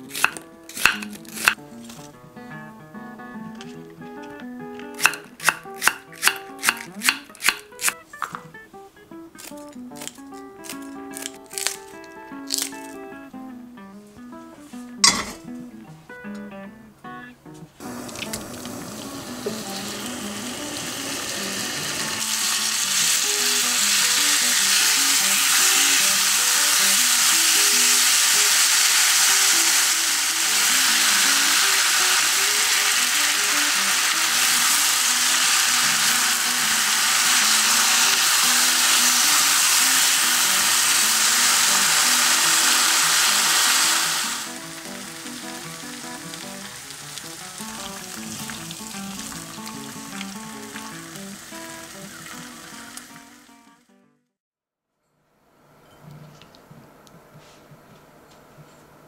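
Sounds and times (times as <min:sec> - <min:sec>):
pork sizzling in a wok: 0:00.0 - 0:01.6, 0:04.9 - 0:08.3, 0:09.4 - 0:13.0, 0:17.8 - 0:53.5.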